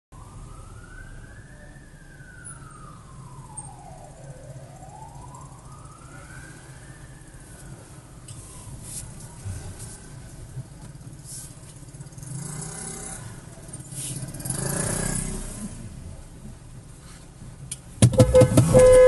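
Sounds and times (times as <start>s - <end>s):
siren wailing: 0.2s - 7.8s, 18.2s - 19.0s
traffic rumble from inside car: 0.2s - 19.0s.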